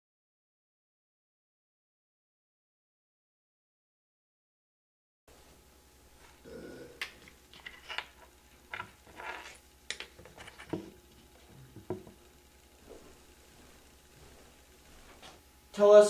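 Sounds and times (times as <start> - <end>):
low electrical hum: 5.3 - 16.0.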